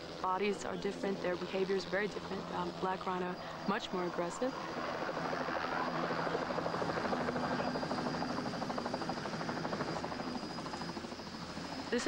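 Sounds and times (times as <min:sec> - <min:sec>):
helicopter engine tone: 0:00.0 - 0:12.0
helicopter rotor beating: 0:00.0 - 0:12.0.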